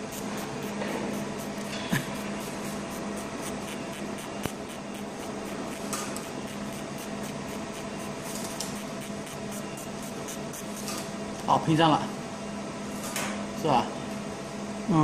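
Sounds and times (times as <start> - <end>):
laser marking machine humming: 0.0 - 11.5.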